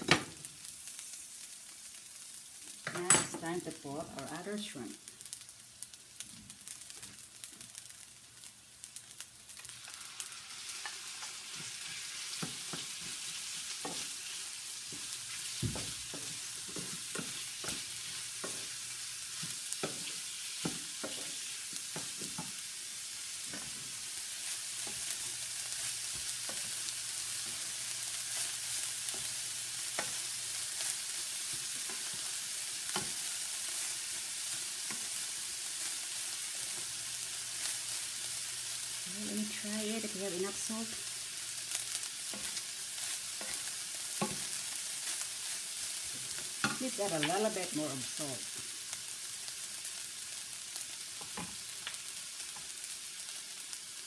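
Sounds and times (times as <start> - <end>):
shrimp sizzling in hot oil: 0.0 - 54.0
spoon knocking and scraping pan: 2.8 - 3.6, 10.8 - 14.2, 14.9 - 22.6, 29.1 - 30.3, 42.3 - 45.2, 46.0 - 47.5.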